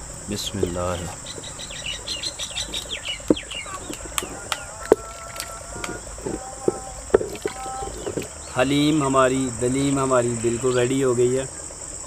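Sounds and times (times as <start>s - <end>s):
birds chirping: 0.0s - 12.0s
high insect drone: 0.0s - 12.0s
wooden spoon knocking clay pot: 2.6s - 8.4s.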